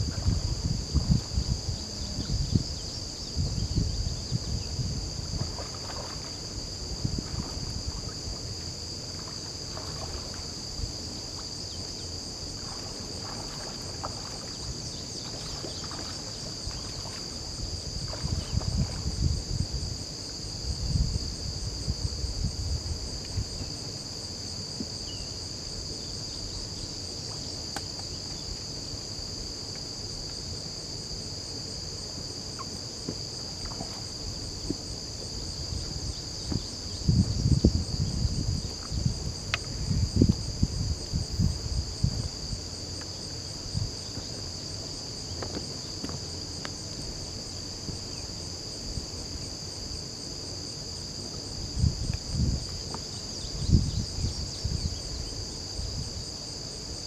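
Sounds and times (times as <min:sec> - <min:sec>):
wind buffeting microphone: 0:00.0 - 0:08.6, 0:12.6 - 0:23.8, 0:34.4 - 0:42.7, 0:51.6 - 0:56.3
insects chorus: 0:00.0 - 0:57.0.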